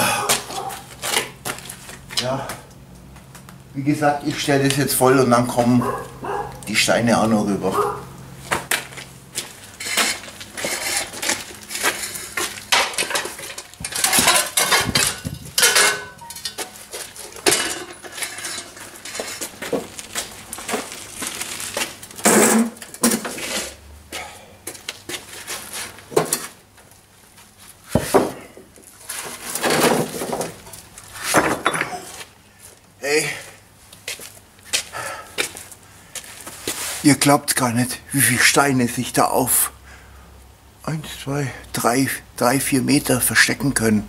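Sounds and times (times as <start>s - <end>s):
rocks clanking on metal wheelbarrow: 9.8s - 20.9s, 22.2s - 23.6s, 29.1s - 32.2s.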